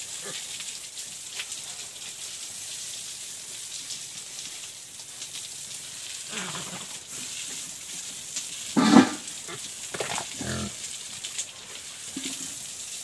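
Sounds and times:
hose water spraying and splashing: 0.0s - 13.0s
pig grunt: 6.3s - 6.9s, 8.8s - 10.8s.

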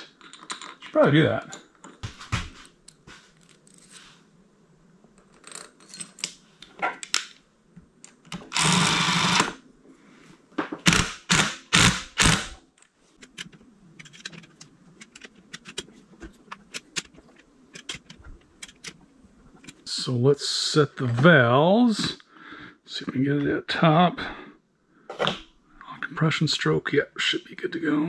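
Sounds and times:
power tool running: 8.5s - 9.6s.

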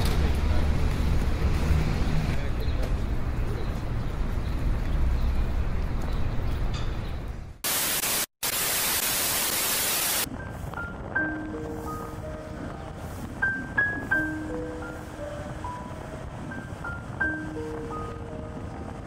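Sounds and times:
loud white-noise static: 7.6s - 10.3s
soft music with bell-like notes: 10.4s - 19.0s.

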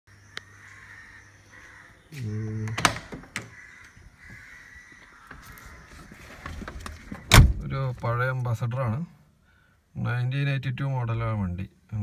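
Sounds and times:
car door creaking open: 2.6s - 4.4s, 5.2s - 8.0s
door handle and latch clicks: 2.7s - 3.5s.

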